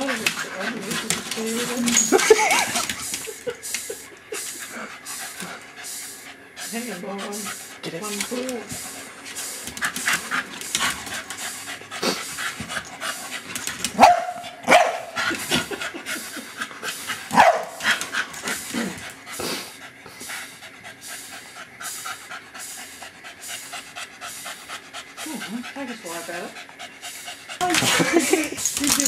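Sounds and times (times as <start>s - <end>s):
dog panting: 0.0s - 29.0s.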